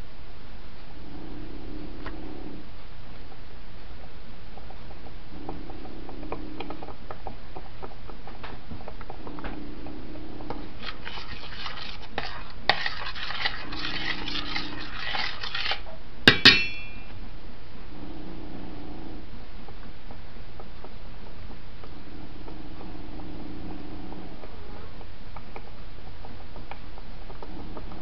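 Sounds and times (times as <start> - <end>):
spoon scraping saucepan: 10.6 - 17.1.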